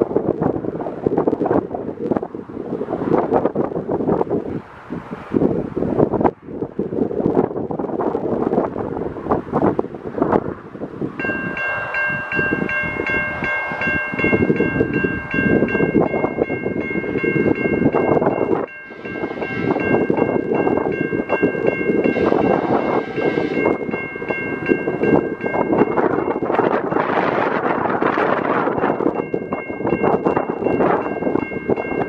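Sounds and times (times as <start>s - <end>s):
diesel locomotive rumble: 0.0s - 32.0s
wind on microphone: 0.0s - 32.0s
level crossing bell ringing: 11.2s - 27.2s.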